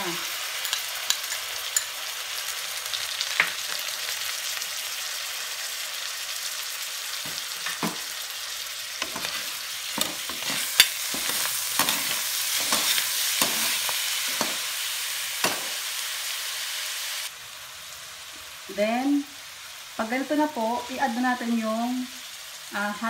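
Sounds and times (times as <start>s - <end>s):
meat sizzling in hot oil: 0.0s - 23.0s
spatula scraping a wok: 9.0s - 15.9s.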